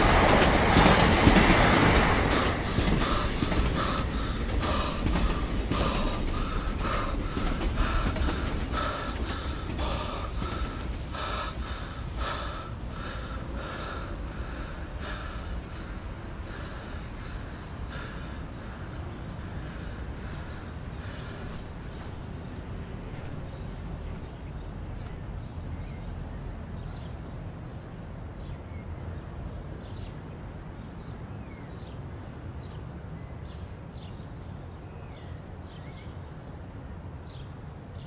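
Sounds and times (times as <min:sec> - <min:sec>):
low rumble of train: 0:00.0 - 0:38.0
person panting: 0:01.8 - 0:22.4.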